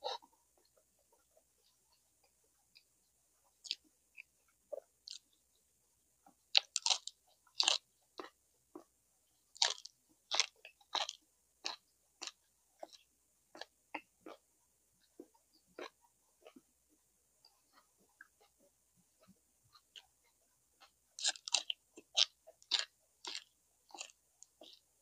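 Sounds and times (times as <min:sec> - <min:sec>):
chewing with wet lip smacks: 0:09.5 - 0:14.4, 0:17.4 - 0:24.9.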